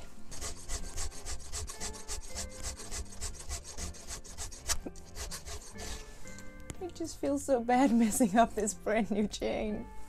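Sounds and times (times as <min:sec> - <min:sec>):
file rasping on chainsaw teeth: 0:00.3 - 0:06.1.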